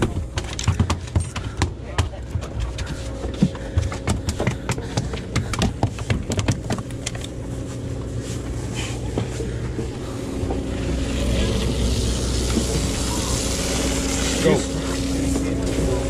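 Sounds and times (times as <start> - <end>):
sharp knocks and clicks: 0.0 - 2.6, 3.2 - 7.3
boat engine running: 0.0 - 16.0.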